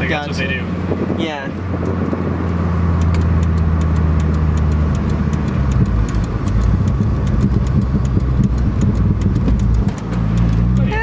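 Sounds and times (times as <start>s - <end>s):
car engine running: 0.0s - 11.0s.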